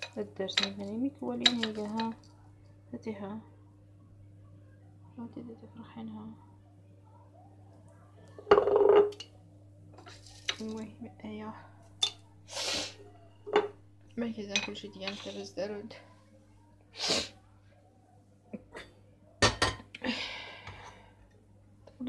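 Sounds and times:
dishes and kettle clinking: 0:00.0 - 0:02.2, 0:08.4 - 0:09.3, 0:12.0 - 0:12.2, 0:13.4 - 0:13.8, 0:14.5 - 0:15.5, 0:19.4 - 0:19.9.

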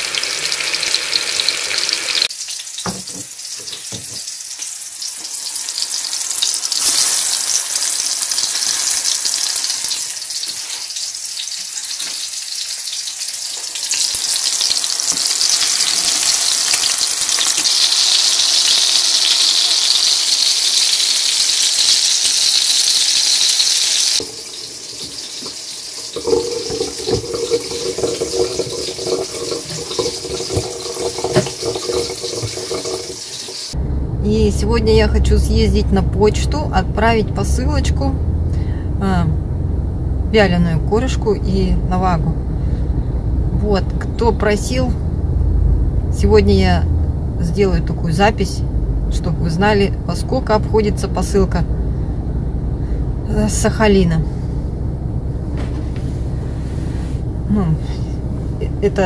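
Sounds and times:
fish sizzling in frying pan: 0:00.0 - 0:33.8.

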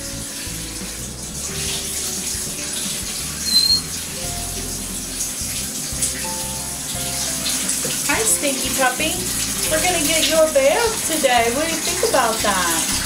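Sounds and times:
background music: 0:00.0 - 0:13.0
tap water rushing into tub: 0:00.0 - 0:13.0
short high-pitched sound: 0:03.4 - 0:03.9.

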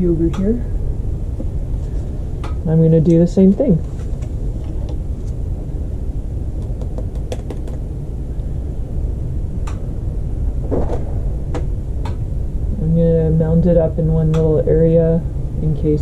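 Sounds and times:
low rumble: 0:00.0 - 0:07.2, 0:07.8 - 0:16.0.

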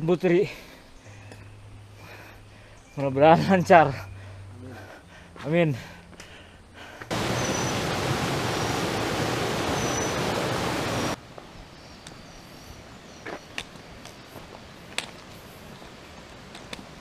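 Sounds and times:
forest ambience: 0:00.0 - 0:17.0
rushing running water: 0:07.1 - 0:11.2.

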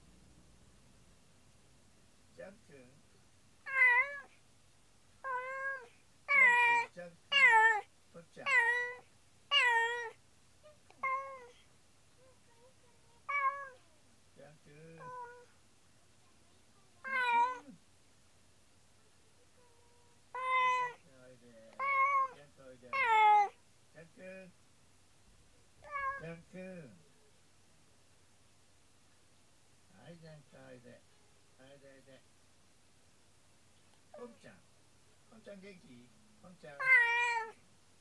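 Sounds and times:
cat meowing: 0:03.6 - 0:04.3, 0:05.2 - 0:11.6, 0:13.2 - 0:13.9, 0:15.0 - 0:15.5, 0:17.0 - 0:17.8, 0:20.3 - 0:21.1, 0:21.7 - 0:23.6, 0:25.8 - 0:26.4, 0:36.8 - 0:37.6.

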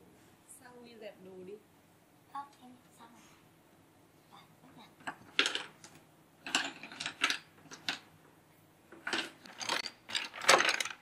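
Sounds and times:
wooden puzzle pieces clattering: 0:05.0 - 0:08.1, 0:08.9 - 0:11.0.

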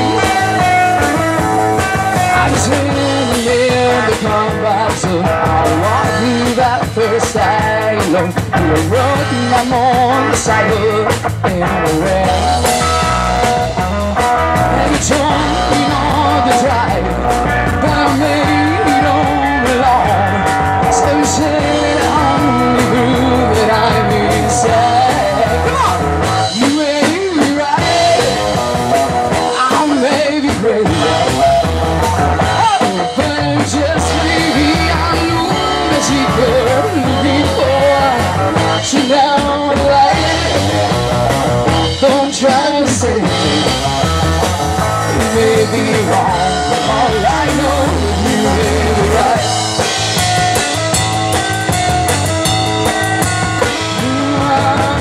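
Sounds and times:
drum kit: 0:00.0 - 0:55.0
electric guitars: 0:00.0 - 0:55.0
woman singing lead: 0:14.6 - 0:28.5, 0:32.5 - 0:41.2, 0:45.0 - 0:49.8, 0:53.6 - 0:55.0.

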